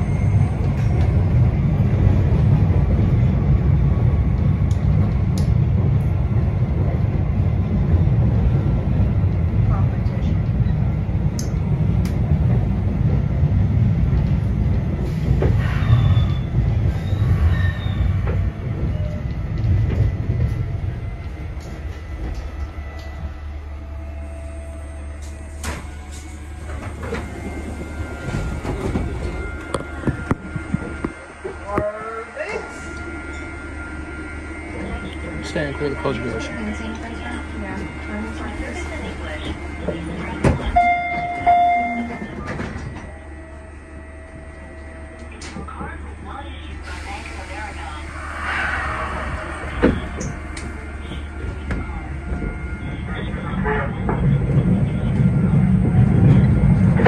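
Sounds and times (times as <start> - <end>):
subway wheels rumbling on rail: 0.0 - 57.0.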